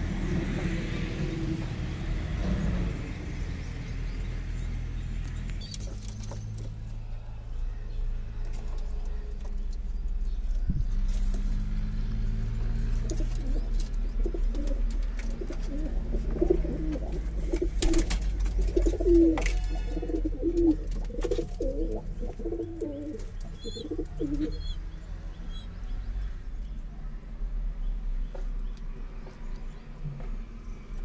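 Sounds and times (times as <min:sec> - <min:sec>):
pigeons cooing: 0:12.8 - 0:24.9.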